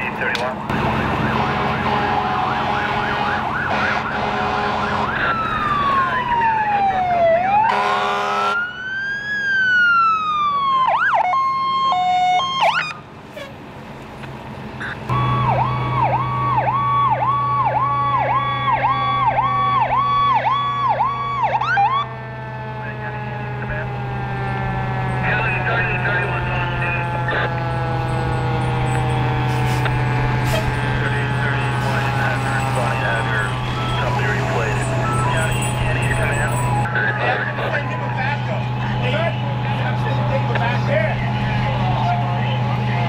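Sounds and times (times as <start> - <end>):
diesel engine drone: 0.0 - 43.0
siren wailing: 0.6 - 13.0, 14.8 - 43.0
air horn blast: 1.2 - 5.2, 7.7 - 8.6, 24.6 - 36.9
siren fast yelp: 1.8 - 13.0, 15.1 - 22.1, 22.7 - 38.7.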